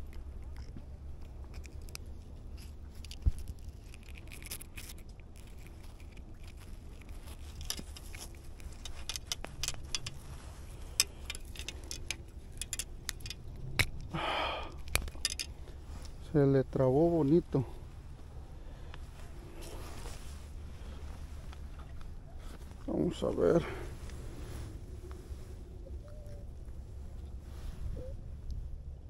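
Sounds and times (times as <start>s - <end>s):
pliers clicking and scraping: 1.2s - 10.2s, 10.8s - 14.1s, 14.7s - 16.2s.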